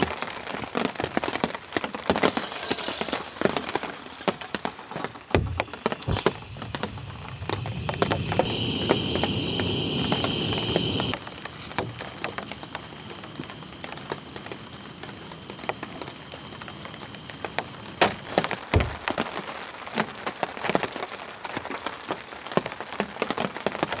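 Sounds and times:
raindrops pattering: 0.0s - 24.0s
hiss with high whistling tone: 2.2s - 18.8s.

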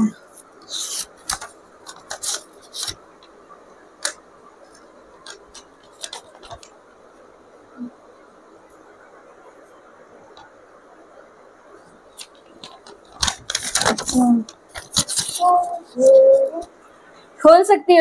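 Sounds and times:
paper crinkling and clicking: 0.7s - 3.3s, 4.0s - 6.8s, 12.1s - 16.2s.

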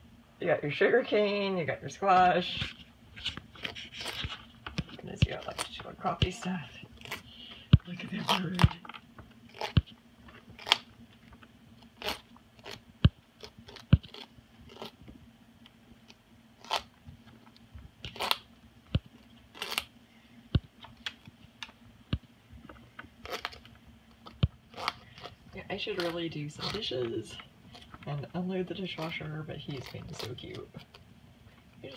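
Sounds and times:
parrot beak crunching squash: 2.6s - 15.0s, 16.0s - 17.0s, 18.0s - 19.9s, 23.2s - 28.1s.

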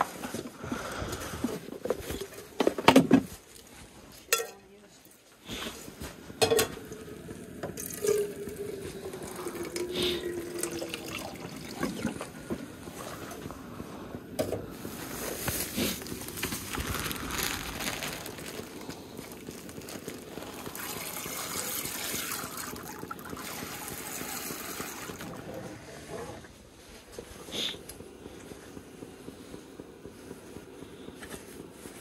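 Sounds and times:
camp stove hissing: 5.3s - 32.0s
plastic bag rustling: 14.7s - 23.9s.

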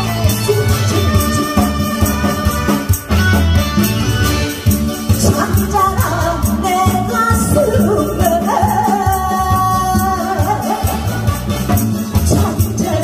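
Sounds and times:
person singing through pa: 0.0s - 3.1s, 5.0s - 13.0s
backing track with steady beat: 0.0s - 13.0s.

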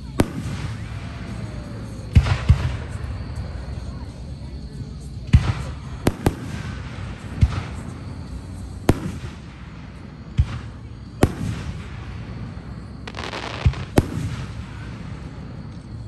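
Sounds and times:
fireworks booming: 0.0s - 3.6s, 5.3s - 16.0s
fireworks crackle: 5.3s - 16.0s.

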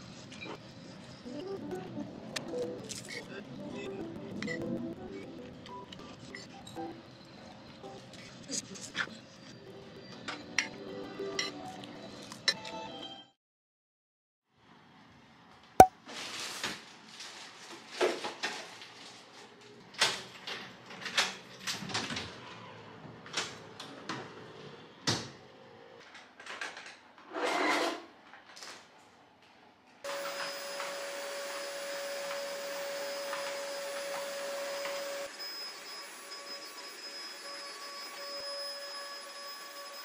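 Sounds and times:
electric appliance hum: 30.1s - 40.0s.

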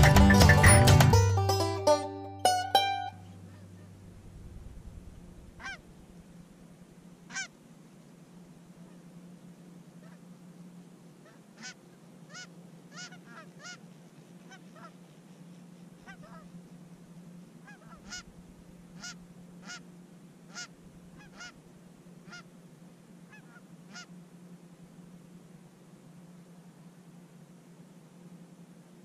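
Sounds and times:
steady low hum: 0.0s - 29.0s
geese honking: 5.5s - 6.2s, 7.3s - 7.5s, 11.2s - 13.8s, 14.5s - 15.0s, 16.0s - 16.5s, 17.6s - 19.9s, 20.5s - 21.6s, 22.2s - 22.5s, 23.3s - 24.2s.

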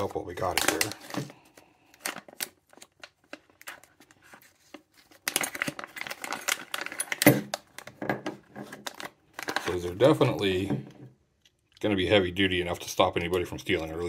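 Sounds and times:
plastic bags crinkling: 0.0s - 8.0s, 8.6s - 10.2s.

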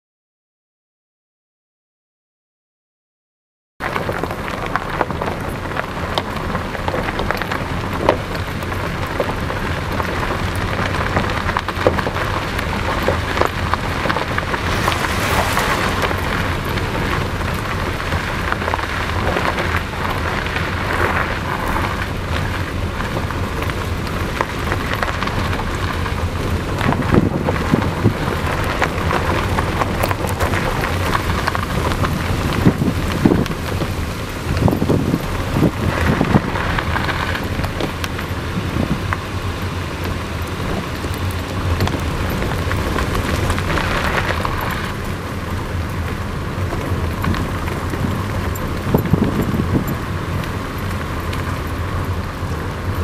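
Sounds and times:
tyre and wind noise: 3.8s - 53.0s
low hum: 13.6s - 18.6s.

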